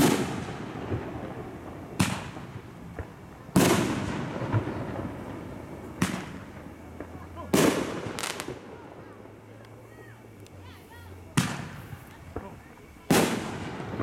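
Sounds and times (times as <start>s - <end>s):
firework shells booming: 0.0s - 9.2s, 11.3s - 14.0s
faint firework pops: 2.0s - 8.8s, 11.3s - 14.0s.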